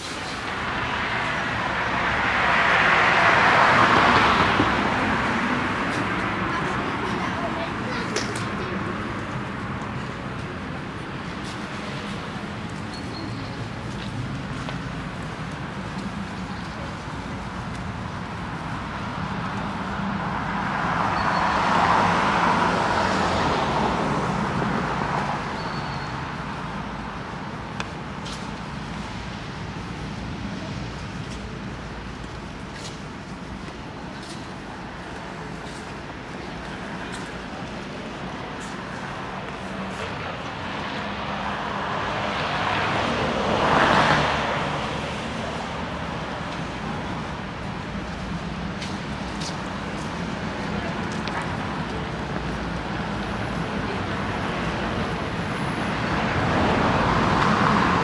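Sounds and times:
city traffic noise: 0:00.0 - 0:58.0
vehicle passing: 0:28.7 - 0:58.0.

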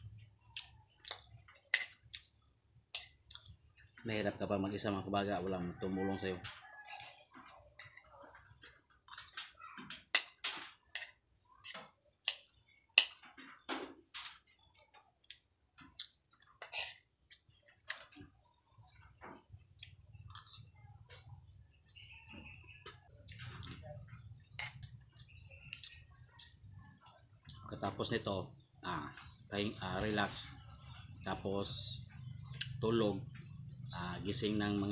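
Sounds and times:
person chewing: 0:15.2 - 0:18.0, 0:19.8 - 0:20.7
metal spoon scraping a wok: 0:16.6 - 0:17.0.

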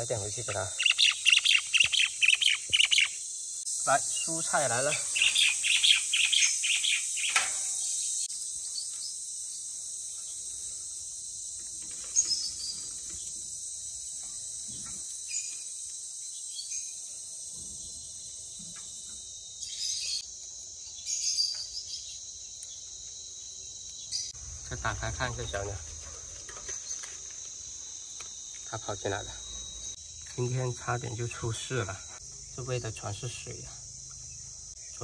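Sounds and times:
lovebirds shrill chirps: 0:00.0 - 0:03.3, 0:04.0 - 0:09.2, 0:11.9 - 0:17.1, 0:19.6 - 0:20.2, 0:20.8 - 0:23.0
high-pitched bird chatter: 0:00.2 - 0:03.2, 0:03.9 - 0:08.0.

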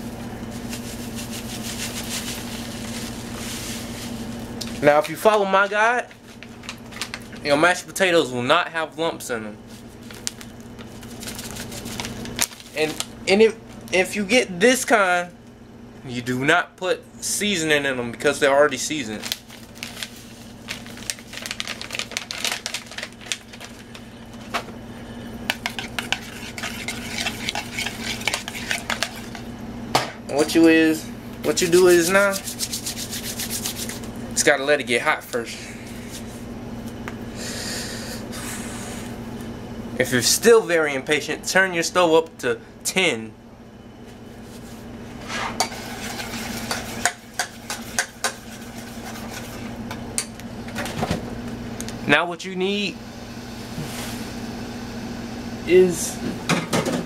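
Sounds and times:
steady low hum: 0:00.0 - 0:57.0
utensil scraping metal pot: 0:25.5 - 0:29.4.

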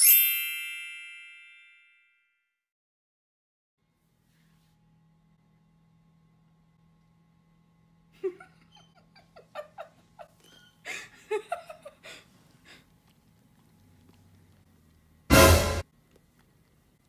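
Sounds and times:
dog squeaks and breaths: 0:10.4 - 0:10.8.

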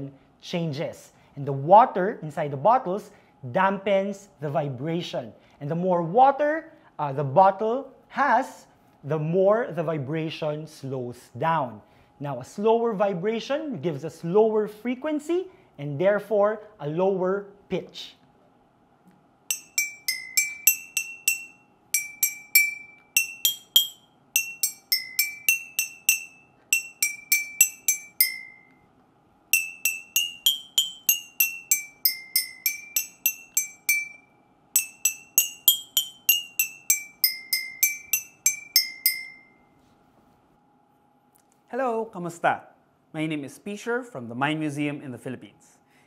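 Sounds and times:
glass bottles tapped with stick: 0:19.5 - 0:28.7, 0:29.6 - 0:34.2, 0:34.8 - 0:39.5.

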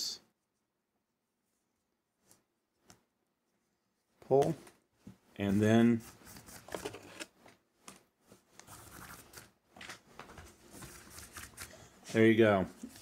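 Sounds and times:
paracord rustling and scraping: 0:05.0 - 0:13.0.

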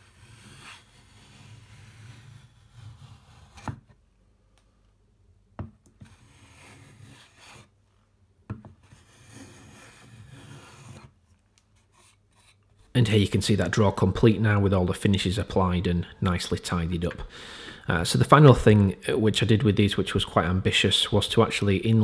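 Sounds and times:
hand plane shaving wood: 0:09.0 - 0:11.1.

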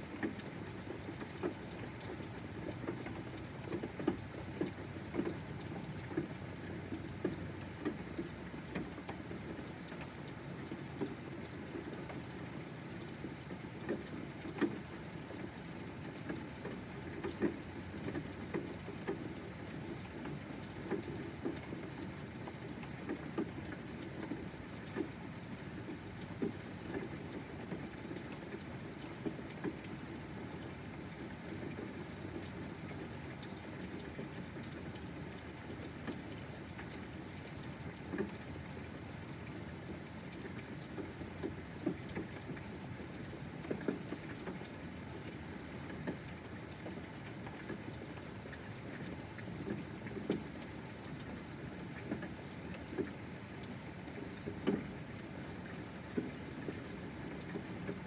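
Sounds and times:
steady rain falling: 0:00.0 - 0:58.0
raindrops ticking: 0:00.1 - 0:58.0.

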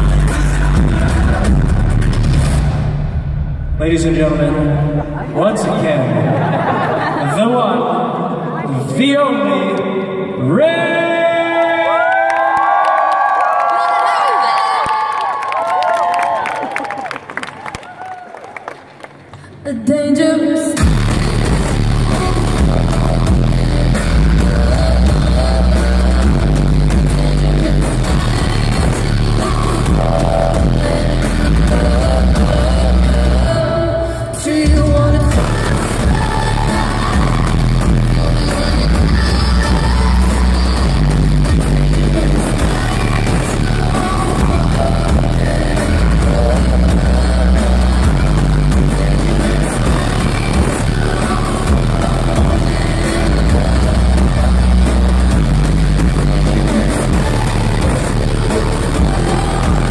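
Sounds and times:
live band music with heavy bass: 0:00.0 - 0:07.2, 0:20.8 - 0:33.7, 0:34.4 - 0:59.9
person singing through pa: 0:19.7 - 0:59.9.

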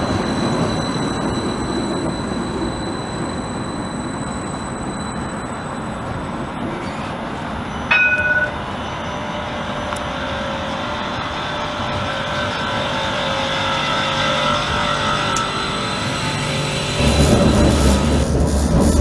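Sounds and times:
tram wheels rumbling on rail: 0:00.0 - 0:19.0
two-note chime: 0:07.9 - 0:08.6.

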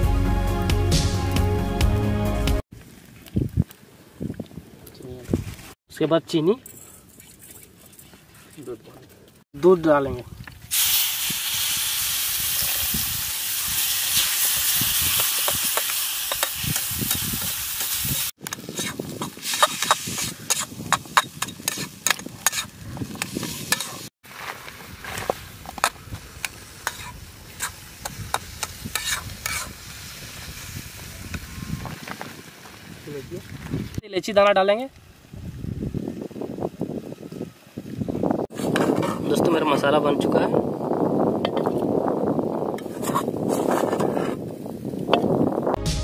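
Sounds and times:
milk sizzling in hot pan: 0:10.6 - 0:33.6
metal spatula scraping pan: 0:18.7 - 0:22.7, 0:26.8 - 0:27.7, 0:28.9 - 0:29.7.

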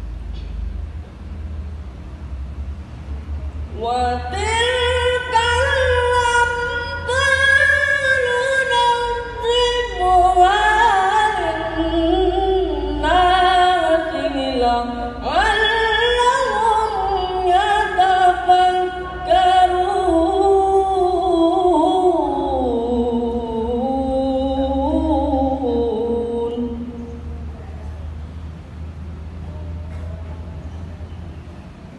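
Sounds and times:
boy chanting into microphone: 0:03.7 - 0:28.0.

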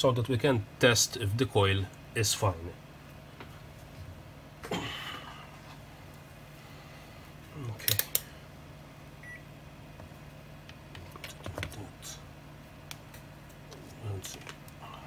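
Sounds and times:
faint meter beep: 0:09.2 - 0:09.5.

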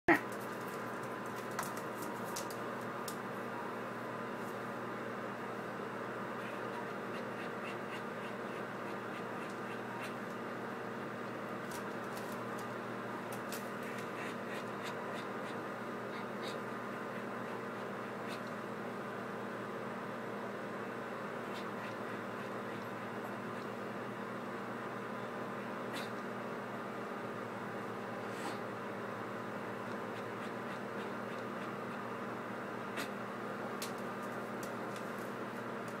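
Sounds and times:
low electrical hum: 0:00.1 - 0:36.0.

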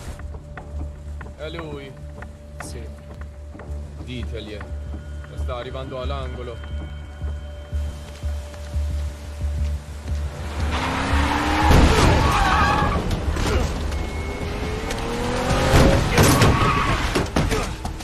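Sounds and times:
rain hiss: 0:06.8 - 0:11.6
car engine revving: 0:10.2 - 0:17.4
tyres screeching: 0:10.6 - 0:18.0.

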